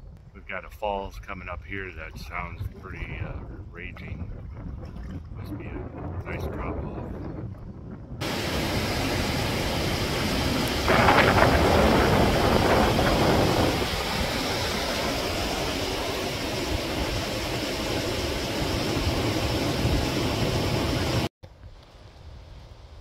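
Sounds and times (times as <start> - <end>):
water rushing over rocks: 8.2 - 21.3.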